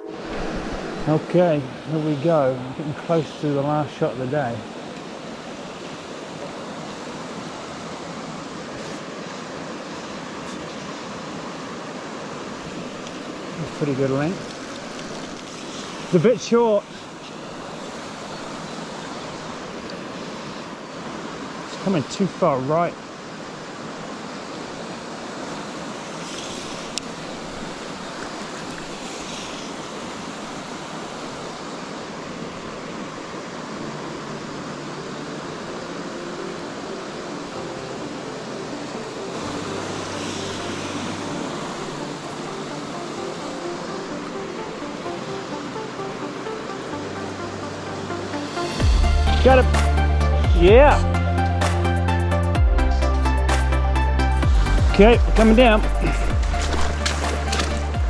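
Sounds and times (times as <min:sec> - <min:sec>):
river flowing over stones: 0:00.0 - 0:51.9, 0:54.7 - 0:58.0
fly line swishing: 0:39.4 - 0:42.7, 0:56.0 - 0:58.0.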